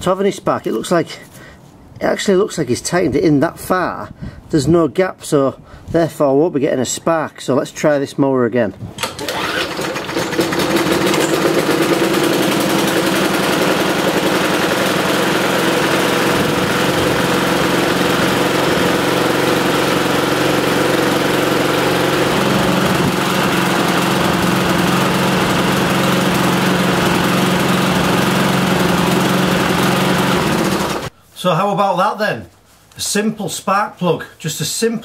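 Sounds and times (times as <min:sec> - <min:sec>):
lawnmower engine running: 0:09.0 - 0:31.1.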